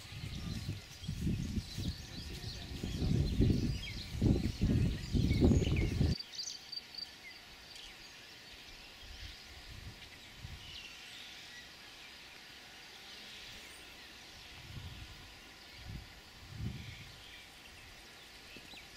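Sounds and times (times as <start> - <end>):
wind buffeting microphone: 0.0 - 6.2, 14.5 - 17.2.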